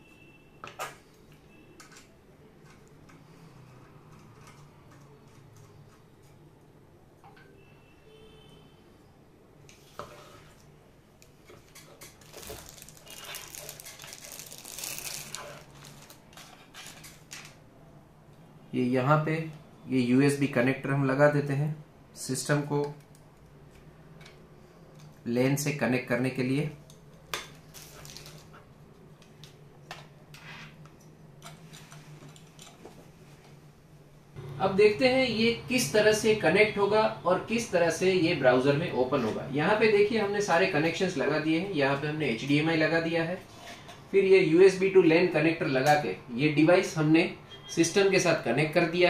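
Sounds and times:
plastic packaging crinkling: 0:11.6 - 0:17.6, 0:27.6 - 0:28.6.

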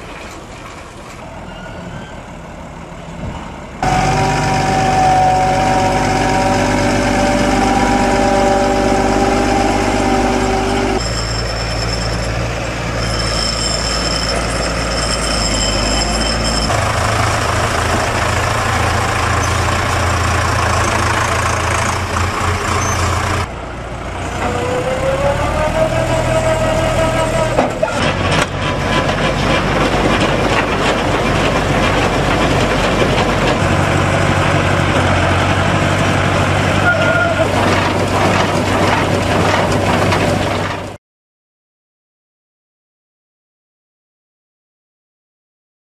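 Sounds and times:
tractor diesel engines running: 0:00.0 - 0:41.0
engine note rising: 0:03.8 - 0:11.0, 0:15.8 - 0:27.6.

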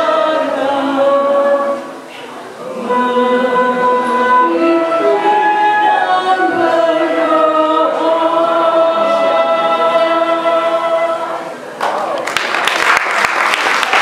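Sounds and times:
group singing in harmony: 0:00.0 - 0:11.6
flute: 0:02.8 - 0:11.4.

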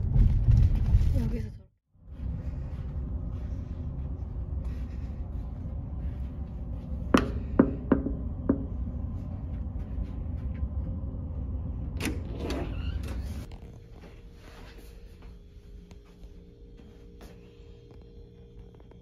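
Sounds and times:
low ship hum: 0:01.2 - 0:19.0
knuckles knocking on door: 0:07.2 - 0:08.7.

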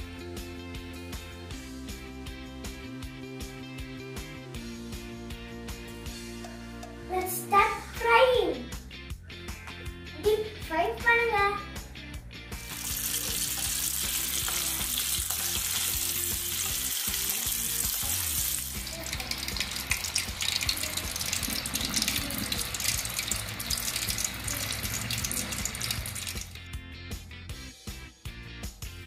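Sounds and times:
chicken deep-frying in oil: 0:12.7 - 0:26.6.

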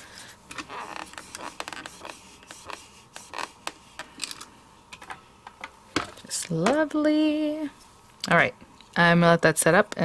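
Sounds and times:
ink pad scraping over stamp: 0:00.6 - 0:03.8.

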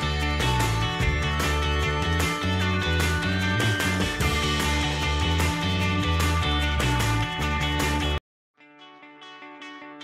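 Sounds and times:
bass-heavy music track: 0:00.0 - 0:08.2
plucked guitar music: 0:00.0 - 0:10.0.

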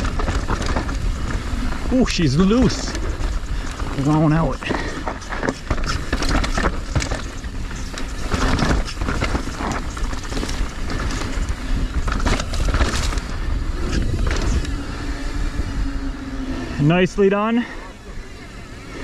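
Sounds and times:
tyres crunching over dirt and rock: 0:00.0 - 0:14.7
bike clattering: 0:00.0 - 0:16.7
steady rumble: 0:00.0 - 0:19.0.

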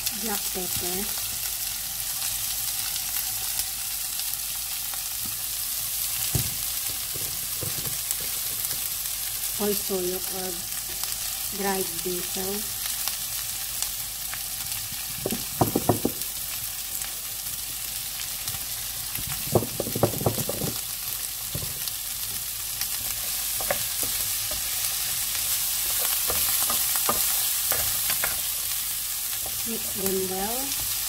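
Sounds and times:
vegetables sizzling in frying pan: 0:00.0 - 0:31.0
sharp taps and knocks: 0:15.2 - 0:16.2
wooden spatula stirring: 0:23.1 - 0:28.5.

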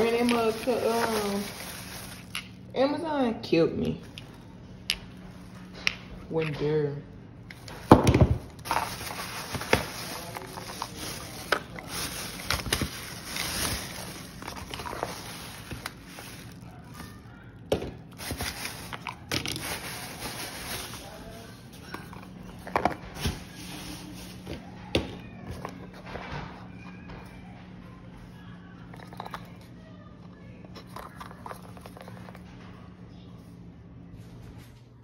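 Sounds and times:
plastic bag rustling: 0:00.0 - 0:02.7, 0:07.5 - 0:26.3.

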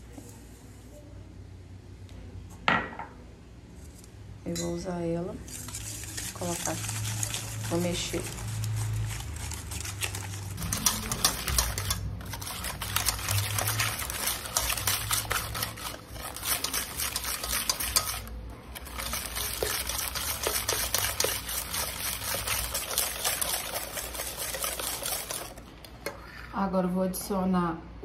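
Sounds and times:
whisk clicking against bowl: 0:09.1 - 0:26.2.

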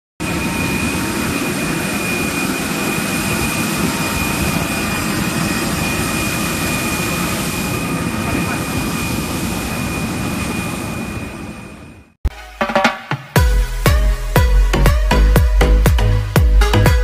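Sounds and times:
jet engine whine: 0:00.2 - 0:12.2.

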